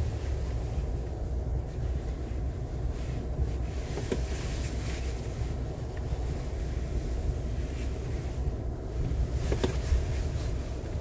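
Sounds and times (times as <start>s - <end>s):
vehicle rumble on dirt trail: 0.0s - 11.0s
wind buffeting microphone: 0.0s - 11.0s.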